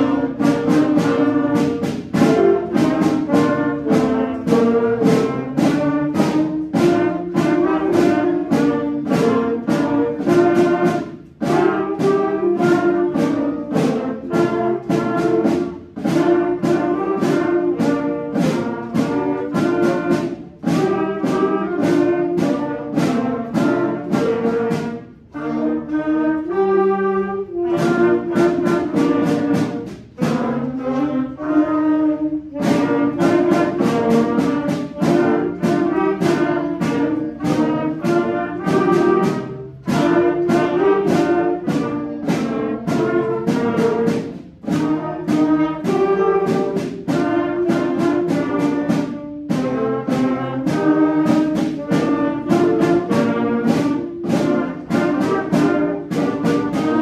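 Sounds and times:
brass section with trombones: 0:00.0 - 0:57.0
concert band playing: 0:00.0 - 0:57.0.

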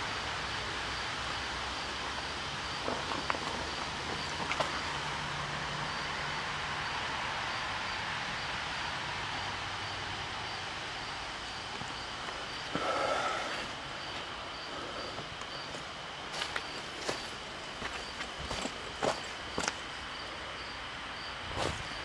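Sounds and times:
hiss: 0:12.5 - 0:15.3.

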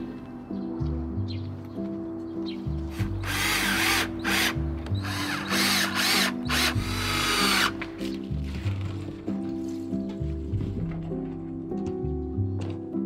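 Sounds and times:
background music with bass: 0:00.0 - 0:13.0
power drill whining: 0:03.0 - 0:07.8.

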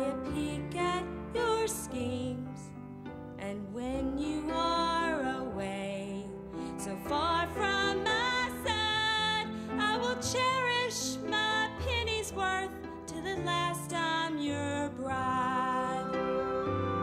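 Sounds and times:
instrumental accompaniment: 0:06.5 - 0:17.0.

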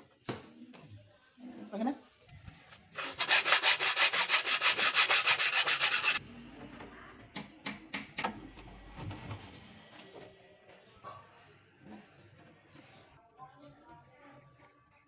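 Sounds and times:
metal blade rasping on wood: 0:03.0 - 0:06.2.

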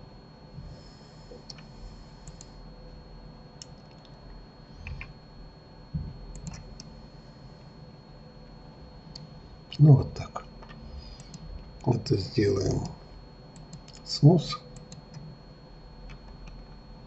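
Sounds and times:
computer mouse and keyboard clicks: 0:04.8 - 0:05.1, 0:06.3 - 0:06.9, 0:10.6 - 0:11.9, 0:13.6 - 0:14.1, 0:16.1 - 0:16.8
low thump: 0:05.9 - 0:06.2.

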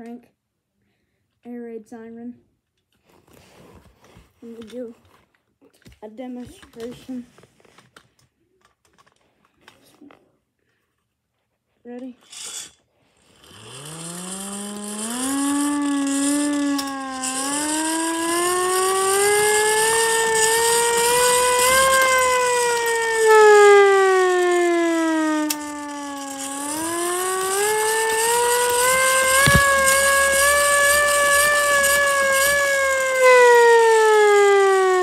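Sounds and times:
hand-crank air raid siren wailing: 0:13.7 - 0:35.0.

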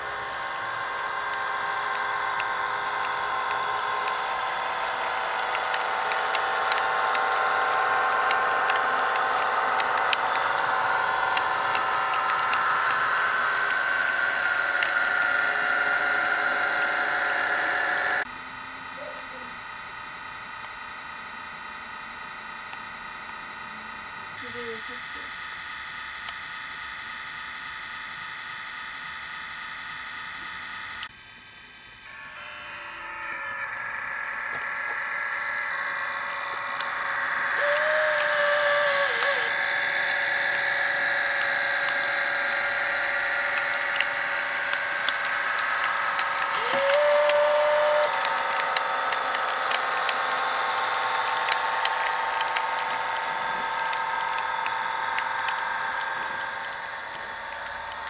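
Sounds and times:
model train motor whine: 0:00.0 - 0:58.0
wheels clicking on track: 0:37.6 - 0:58.0.

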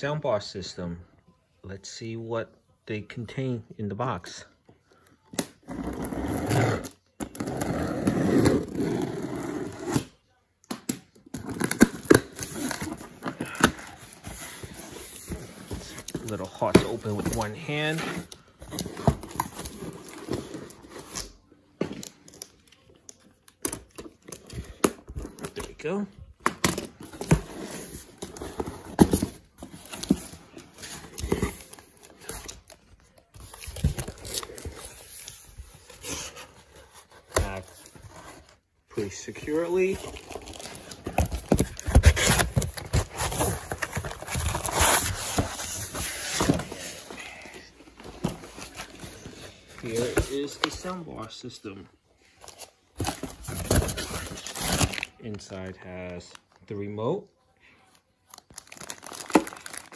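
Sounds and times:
packaging rustling and tearing: 0:26.5 - 0:51.0, 0:52.4 - 0:55.2, 0:58.3 - 0:59.9
cardboard scraping: 0:33.4 - 0:50.9
cardboard box crackling and knocking: 0:40.0 - 0:46.7.

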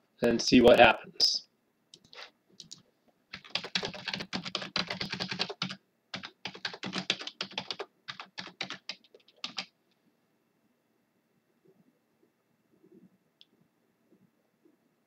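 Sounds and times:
keyboard typing: 0:02.0 - 0:09.7.

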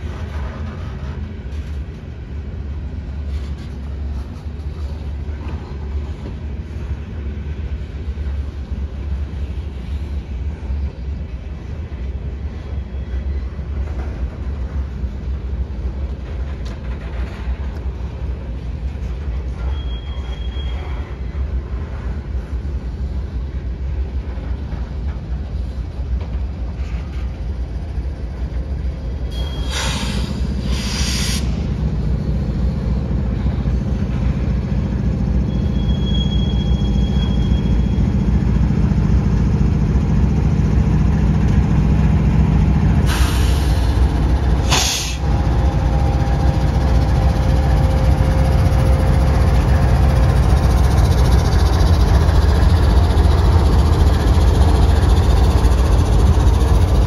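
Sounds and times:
diesel locomotive engine drone: 0:00.0 - 0:57.0
freight train rumbling past: 0:00.0 - 0:57.0
faint wheel squeals: 0:19.4 - 0:21.6, 0:29.3 - 0:31.4, 0:35.2 - 0:38.4
loud high rush of noise: 0:29.3 - 0:33.1, 0:39.2 - 0:57.0.

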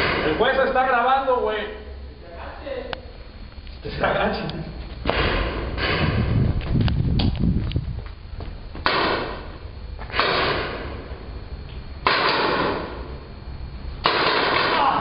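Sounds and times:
paintball marker shots echoing: 0:10.1 - 0:10.9, 0:12.0 - 0:12.9, 0:14.0 - 0:15.0.

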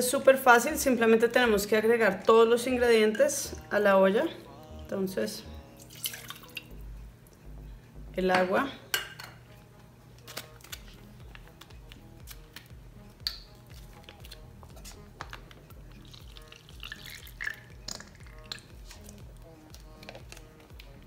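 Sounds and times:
soft background music: 0:00.0 - 0:21.0.

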